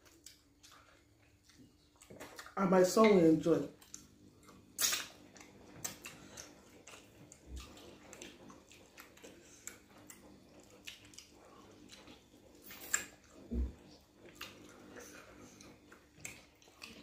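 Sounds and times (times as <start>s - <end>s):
chewing: 0.0s - 2.6s, 3.6s - 17.0s
wet lip smacks: 4.8s - 7.0s, 12.6s - 13.1s.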